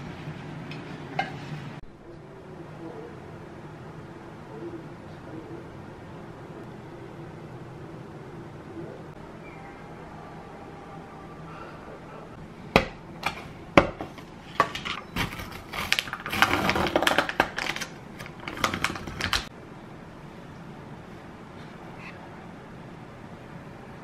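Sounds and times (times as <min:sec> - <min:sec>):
lid peeling with crinkling: 0:13.2 - 0:19.5.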